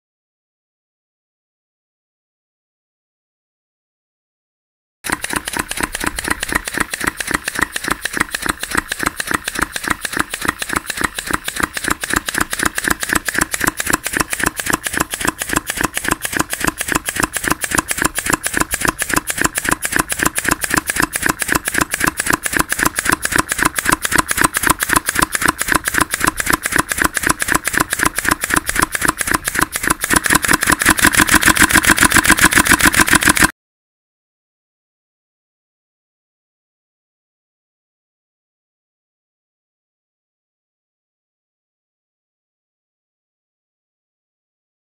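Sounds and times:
compressed-air engine running: 0:05.1 - 0:33.5
sharp cracks of released air: 0:05.1 - 0:33.5.

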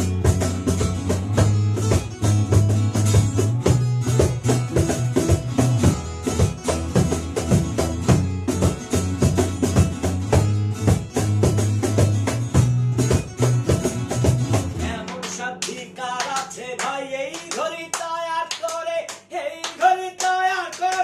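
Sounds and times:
bass guitar: 0:00.0 - 0:16.1
strummed acoustic guitars: 0:00.0 - 0:17.9
cajon beat: 0:00.0 - 0:21.0
hand claps: 0:00.0 - 0:21.0.

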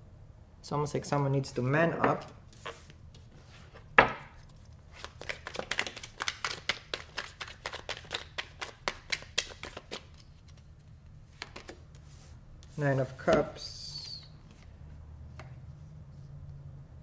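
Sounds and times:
cards shuffled by hand: 0:04.4 - 0:13.4.

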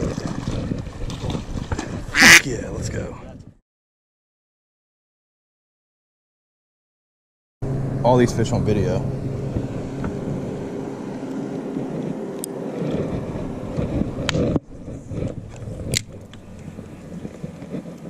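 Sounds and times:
boat motor humming: 0:07.6 - 0:18.0.

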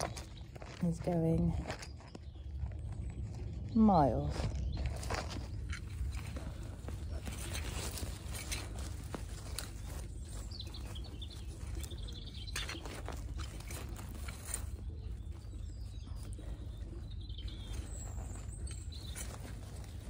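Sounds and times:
birds chirping: 0:00.0 - 0:20.0
roots tearing: 0:04.5 - 0:16.1.

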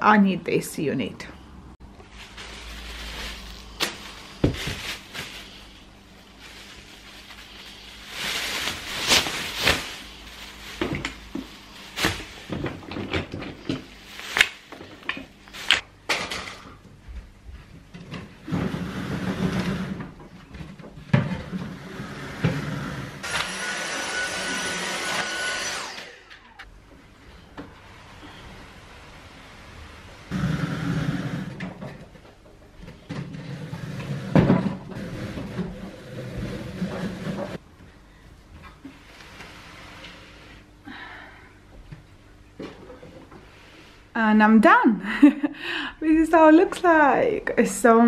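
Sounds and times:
plastic bag rustling: 0:01.9 - 0:16.6
vacuum cleaner whine: 0:21.5 - 0:26.7.

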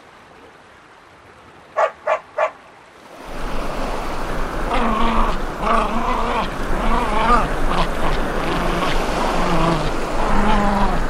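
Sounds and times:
steady rushing sound: 0:03.2 - 0:11.0.

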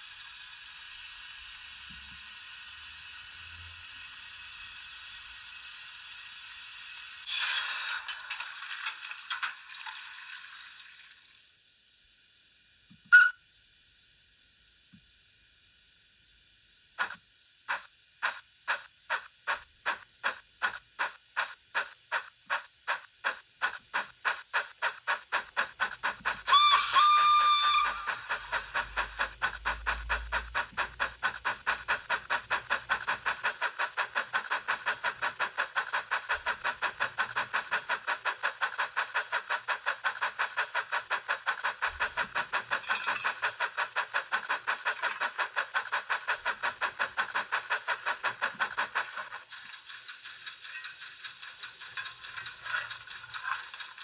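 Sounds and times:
steam locomotive exhaust chuffs: 0:00.0 - 0:07.4, 0:13.1 - 0:13.4, 0:16.9 - 0:54.0
steady steam hiss: 0:00.0 - 0:09.3, 0:10.3 - 0:54.0
steam whistle blast: 0:13.1 - 0:13.4, 0:26.4 - 0:28.6.

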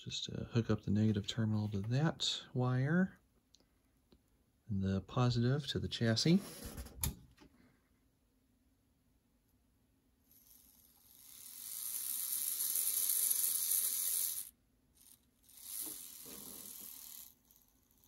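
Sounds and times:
small electric motor whirring: 0:10.3 - 0:18.0.

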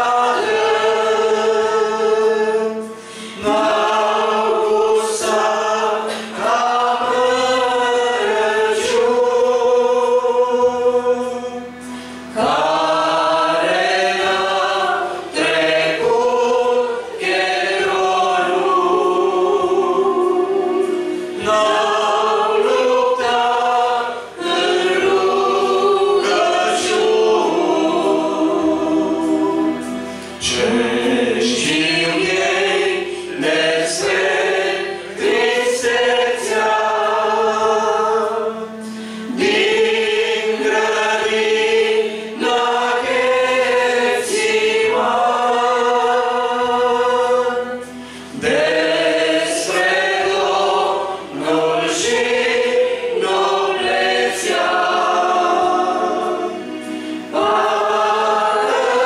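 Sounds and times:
group singing a hymn: 0:00.0 - 0:59.0.

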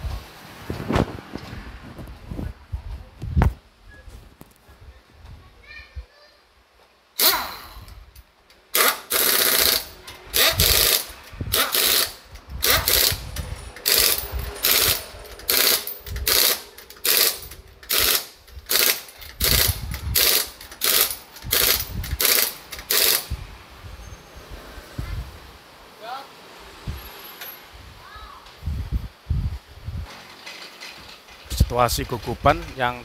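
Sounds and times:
pneumatic impact wrench hammering: 0:07.2 - 0:08.0, 0:08.7 - 0:23.4.

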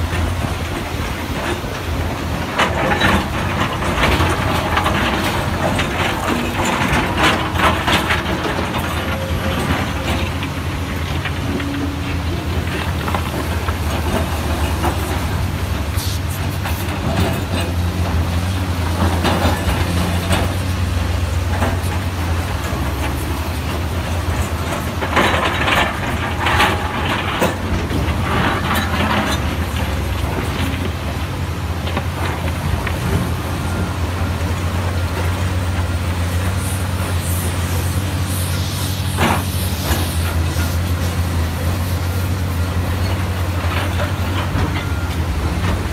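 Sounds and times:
bucket scraping and clattering rock: 0:00.0 - 0:31.2
excavator diesel engine droning: 0:00.0 - 0:45.9.

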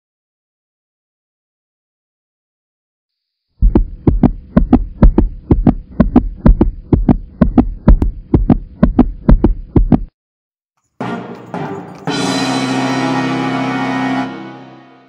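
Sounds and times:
heartbeat double thumps: 0:03.6 - 0:10.1.

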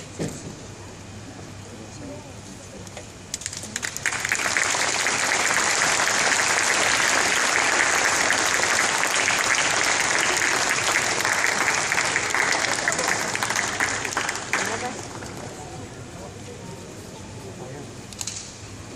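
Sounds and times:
audience applauding: 0:03.3 - 0:15.5.

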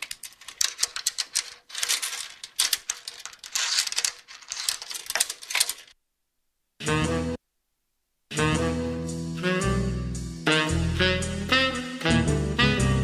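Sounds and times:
crisp clicks and clatters: 0:00.0 - 0:06.0.

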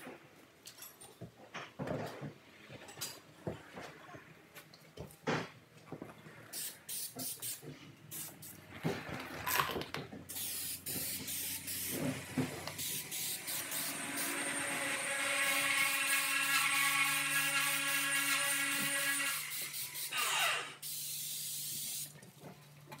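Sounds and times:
aerosol spray hiss: 0:06.5 - 0:08.6, 0:10.3 - 0:12.0, 0:12.8 - 0:14.3, 0:19.5 - 0:20.2, 0:20.8 - 0:22.1
aerosol can rattling: 0:09.2 - 0:11.8.

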